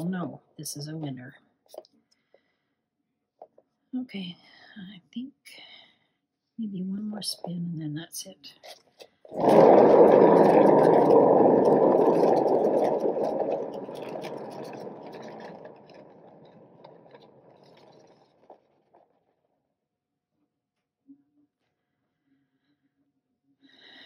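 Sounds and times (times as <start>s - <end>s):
paint spinner rumbling: 9.3s - 19.1s.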